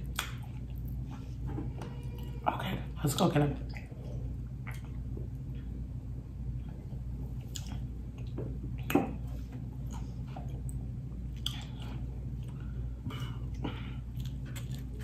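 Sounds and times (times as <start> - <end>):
low hum: 0.0 - 15.0
person chewing and swallowing: 3.7 - 5.9, 6.5 - 15.0.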